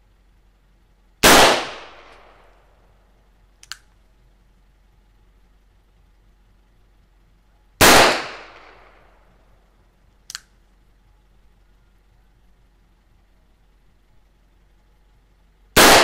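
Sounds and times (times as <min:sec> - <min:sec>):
faint click: 0:03.6 - 0:04.0, 0:10.2 - 0:10.5.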